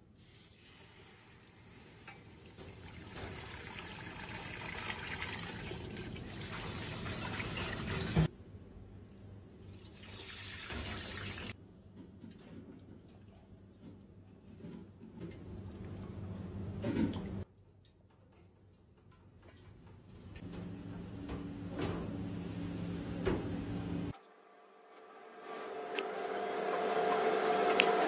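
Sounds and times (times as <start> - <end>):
liquid pouring into saucepan: 1.8 - 8.3.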